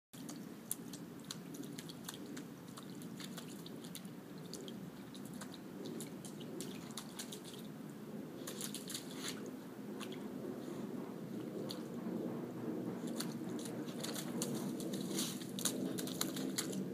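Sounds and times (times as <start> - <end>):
puppy splashing in puddle: 0.2 - 12.0, 12.9 - 16.9
low background hum: 0.2 - 16.9.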